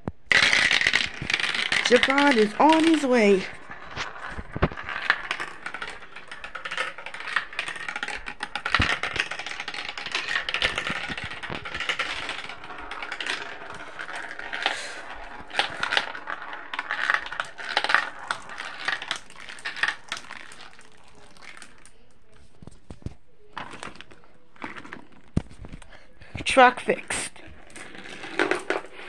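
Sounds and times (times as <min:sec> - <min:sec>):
marbles clattering in plastic tube: 0:00.2 - 0:29.0
marbles rolling hiss: 0:00.3 - 0:22.1.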